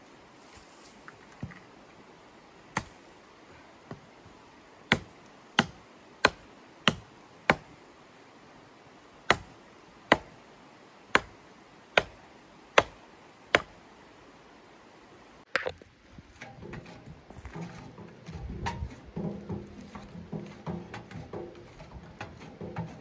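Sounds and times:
sharp chopping strikes: 0:04.9 - 0:07.7, 0:09.3 - 0:09.5, 0:10.1 - 0:10.3, 0:11.2 - 0:11.4, 0:12.0 - 0:12.2, 0:12.8 - 0:13.0, 0:13.6 - 0:13.8.

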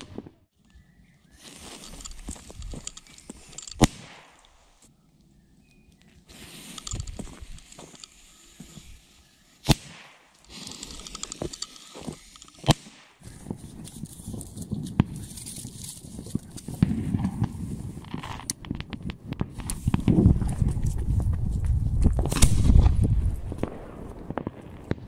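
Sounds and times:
footsteps on dirt and leaves: 0:01.3 - 0:04.8, 0:06.0 - 0:09.3, 0:10.4 - 0:18.5.

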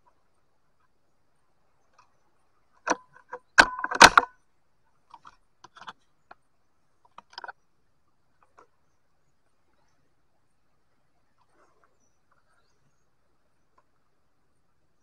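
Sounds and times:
short clicks and knocks: 0:02.8 - 0:04.3.

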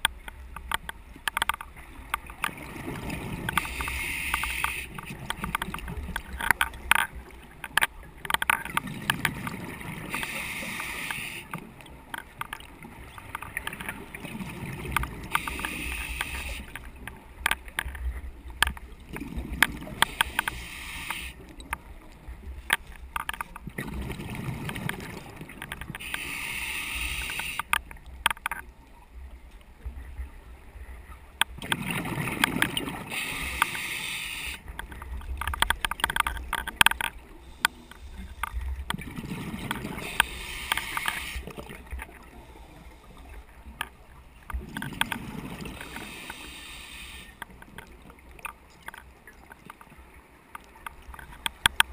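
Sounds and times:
regulator inhalation hiss: 0:03.6 - 0:04.9, 0:10.2 - 0:11.5, 0:15.4 - 0:16.7, 0:20.1 - 0:21.4, 0:26.0 - 0:27.7, 0:33.1 - 0:34.7, 0:40.0 - 0:41.6, 0:45.8 - 0:47.4
exhaled bubbles rushing: 0:23.7 - 0:25.6, 0:31.6 - 0:33.1, 0:38.9 - 0:40.2.

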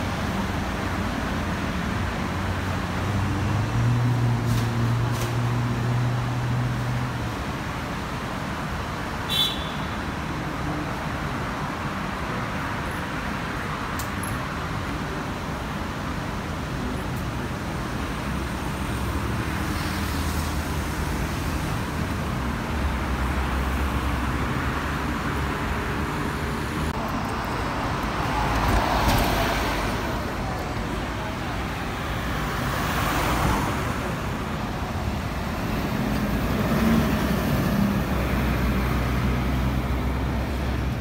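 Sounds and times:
road traffic noise: 0:00.0 - 0:41.0.

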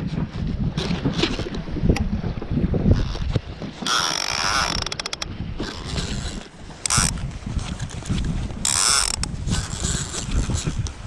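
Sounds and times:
fishing reel clicking and ratcheting: 0:03.8 - 0:07.2, 0:08.6 - 0:10.9.

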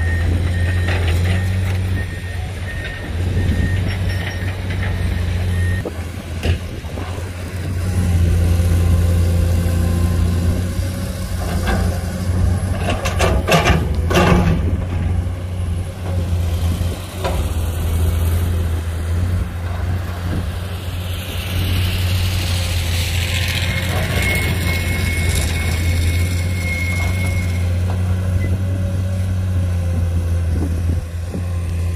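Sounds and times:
heavy machinery diesel engines: 0:00.0 - 0:31.9
metal clanks: 0:12.7 - 0:15.1.

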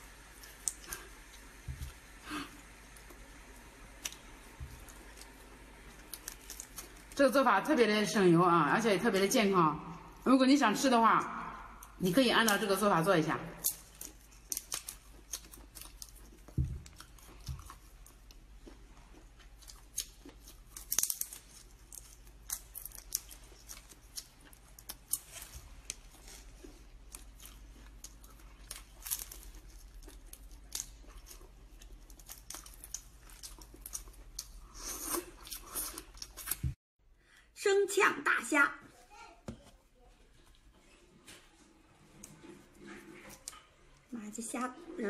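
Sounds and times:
crayfish shells cracking: 0:06.0 - 0:07.2, 0:13.6 - 0:18.4, 0:19.6 - 0:26.0, 0:27.1 - 0:34.6
chewing: 0:13.7 - 0:36.6, 0:40.4 - 0:44.0.

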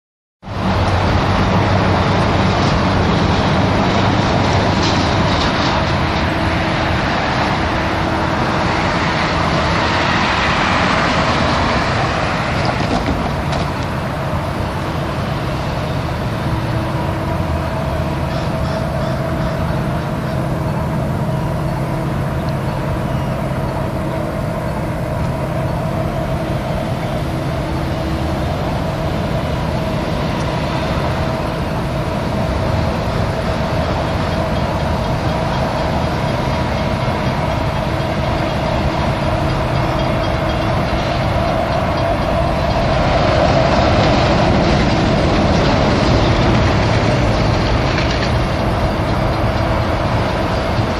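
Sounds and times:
diesel locomotive rumble: 0:00.4 - 0:50.9
road traffic: 0:00.4 - 0:50.9
humming tone: 0:00.5 - 0:50.9.

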